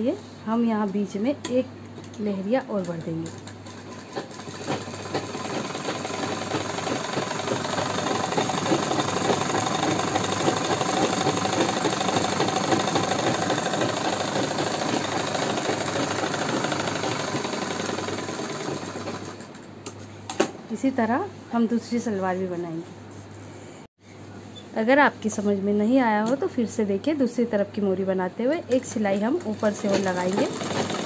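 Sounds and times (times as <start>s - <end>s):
sewing machine running: 3.4s - 19.6s, 29.4s - 31.0s.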